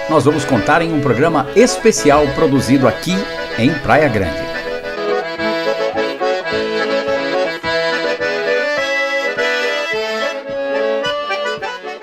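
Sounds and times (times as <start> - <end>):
accordion playing a tune: 0.0 - 12.0
steady low beat: 0.1 - 5.0.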